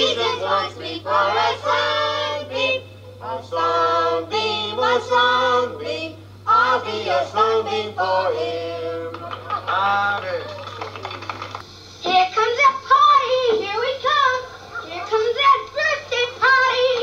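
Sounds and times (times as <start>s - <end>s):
children singing together: 0.0s - 8.7s
steady low hum: 0.0s - 17.0s.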